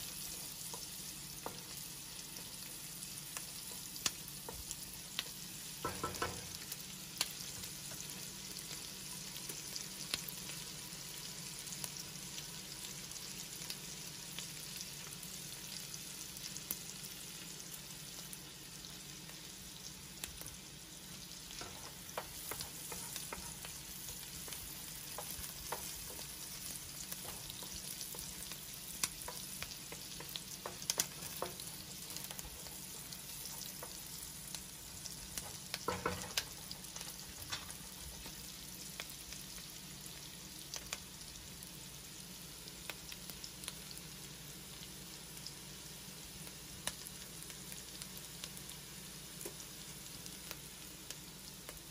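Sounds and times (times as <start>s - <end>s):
onion sizzling in butter: 0.0s - 51.9s
wooden spoon stirring: 21.6s - 34.1s.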